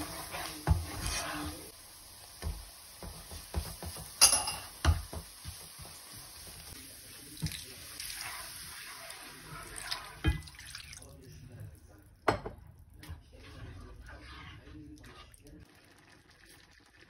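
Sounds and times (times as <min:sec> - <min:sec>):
spoon scraping a pan: 0:00.0 - 0:01.7, 0:02.4 - 0:06.8, 0:13.1 - 0:15.5
milk pouring into pan: 0:06.8 - 0:11.3.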